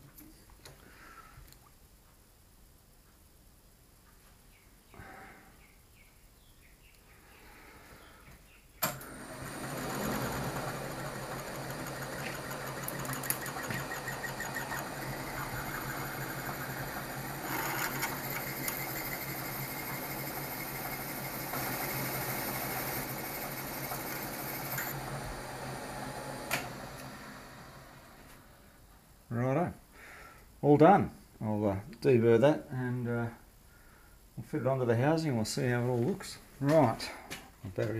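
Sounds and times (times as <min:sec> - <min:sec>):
drill motor humming: 0:09.0 - 0:28.4.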